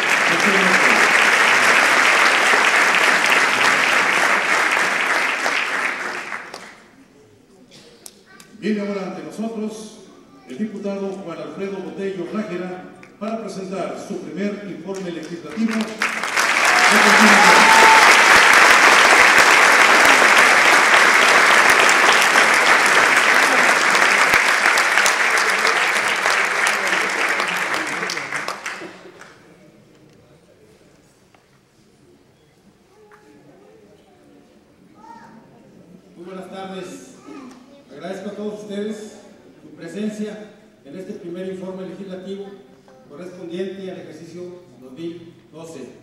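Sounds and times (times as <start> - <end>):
audience applauding: 0.0 - 7.0, 14.9 - 29.4.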